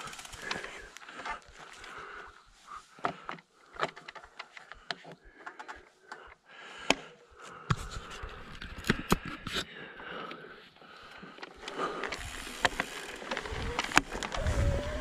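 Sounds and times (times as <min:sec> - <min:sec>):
bike rattling over gravel: 0:00.0 - 0:02.0, 0:11.5 - 0:15.0.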